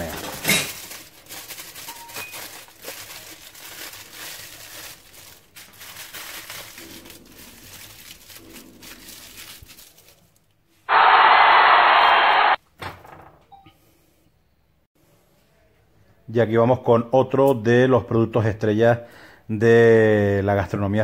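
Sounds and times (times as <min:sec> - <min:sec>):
aluminium foil crinkling: 0:00.0 - 0:10.6.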